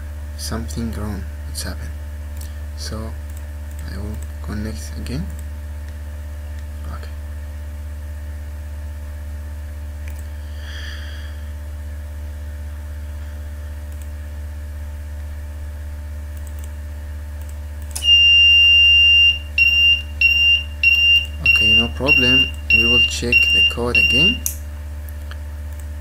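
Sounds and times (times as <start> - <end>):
low electrical hum: 0.0 - 26.0
high-pitched buzzer beep: 18.0 - 24.5.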